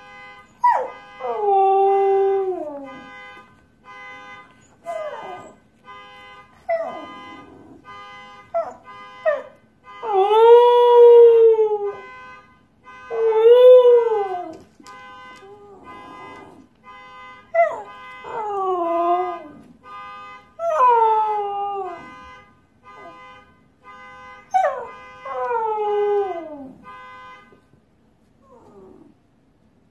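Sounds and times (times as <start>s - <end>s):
car alarm beeping: 0.0s - 27.8s
dog howling and whining: 4.7s - 5.6s.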